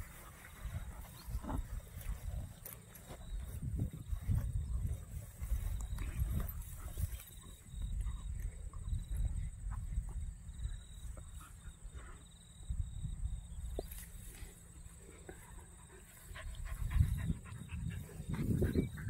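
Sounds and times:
dogs play-wrestling and scuffling: 0.0 - 7.6, 15.2 - 19.0.

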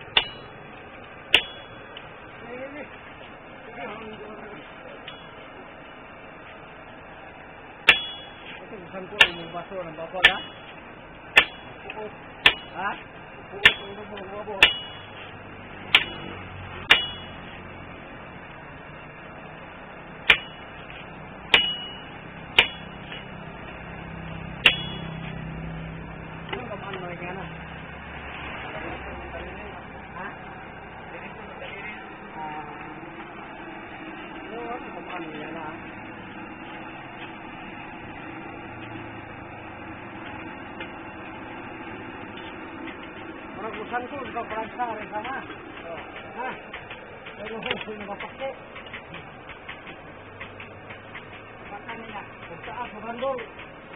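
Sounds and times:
forge fire roaring: 0.0 - 53.9
hammer striking blade on anvil: 0.1 - 0.6, 1.3 - 2.0, 7.8 - 8.6, 9.2 - 10.8, 11.4 - 13.0, 13.6 - 15.3, 15.9 - 17.6, 20.2 - 20.7, 21.5 - 23.3, 24.6 - 25.4.

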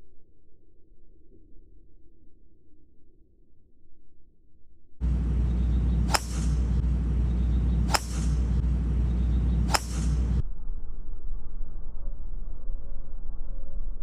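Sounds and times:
golf driver striking ball: 5.0 - 10.4
steady low rumble: 5.0 - 14.0.

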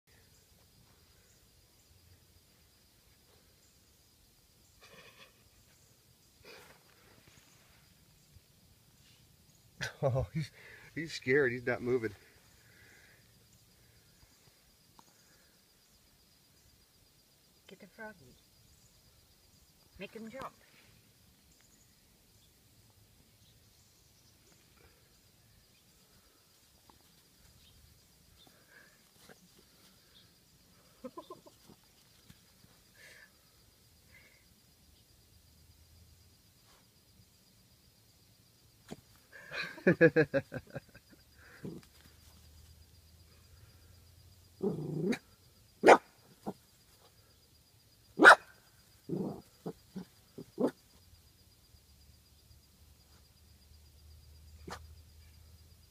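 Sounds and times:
faint chirps: 0.0 - 55.9
dog barking: 45.8 - 46.1, 48.2 - 48.6.

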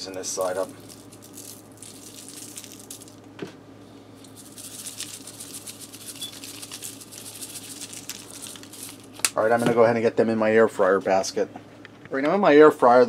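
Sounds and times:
spice shaker rattling: 0.4 - 3.2, 4.2 - 9.2.

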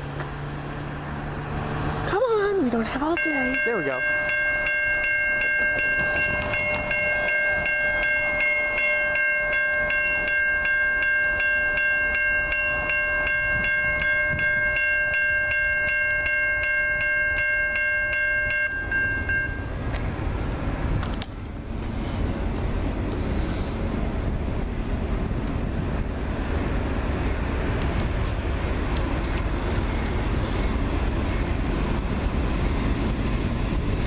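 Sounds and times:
crossing warning bell ringing: 2.1 - 20.0.

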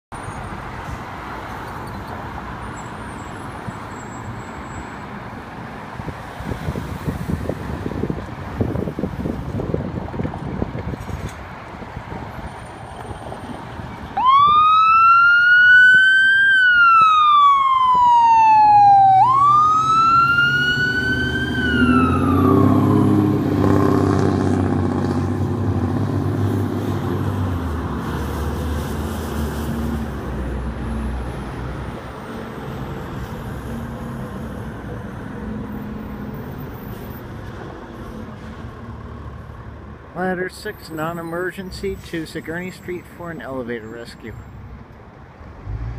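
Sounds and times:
diesel engine pulling away: 12.1 - 38.2, 45.4 - 45.9
electronic siren wailing: 14.2 - 23.2.

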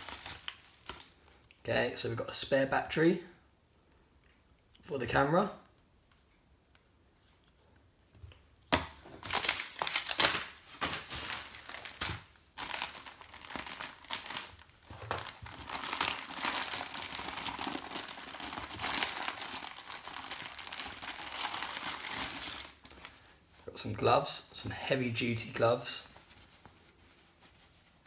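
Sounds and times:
plastic bag crinkling: 0.0 - 1.5, 9.2 - 23.4.

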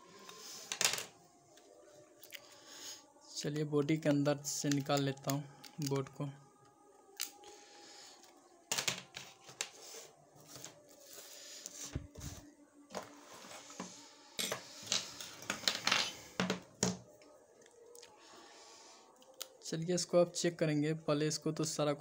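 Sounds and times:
small parts set down: 0.7 - 1.1, 8.7 - 9.8, 12.9 - 17.0
plastic clicks and snaps: 7.1 - 7.4.

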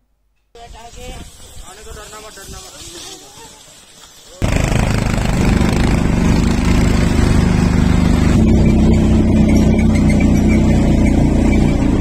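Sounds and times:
rushing hiss: 0.6 - 8.3
quad bike engine running: 4.4 - 12.0.

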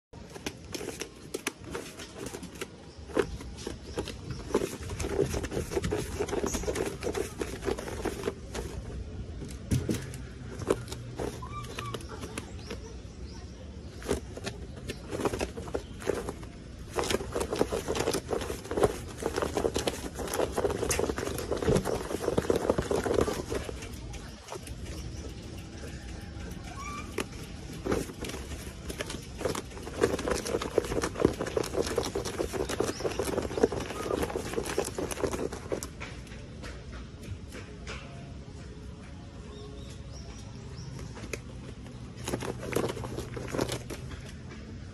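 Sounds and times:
rustling of fur and clothing: 0.2 - 9.1, 10.2 - 26.0, 26.7 - 36.1, 40.8 - 44.4.

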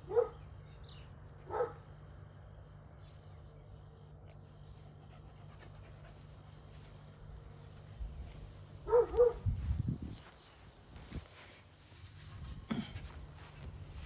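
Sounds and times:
small dog barking: 0.0 - 0.4, 1.5 - 1.8, 8.8 - 9.5.

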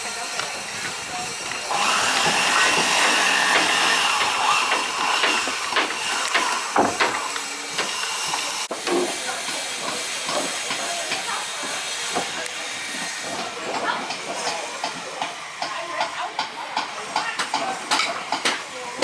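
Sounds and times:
sharp wooden knocks: 2.2 - 7.2.

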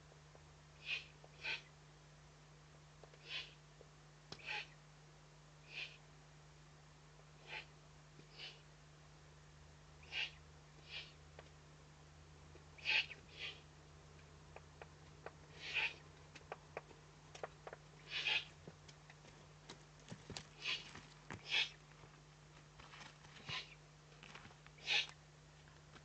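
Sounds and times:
owl chick hissing calls: 0.8 - 1.7, 3.2 - 3.6, 4.4 - 4.8, 5.6 - 6.1, 7.4 - 7.7, 8.3 - 8.7, 10.0 - 11.2, 12.8 - 13.7, 15.2 - 16.0, 17.6 - 18.6, 20.6 - 21.8, 23.4 - 23.8, 24.8 - 25.2.

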